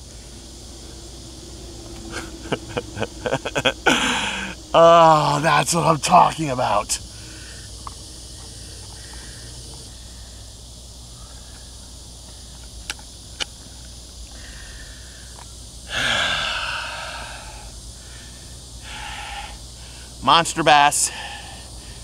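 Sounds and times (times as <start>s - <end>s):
outdoor background hiss: 0.0s - 22.0s
loud breathy rush: 2.0s - 4.7s, 7.0s - 7.8s, 8.5s - 12.5s, 14.3s - 22.0s.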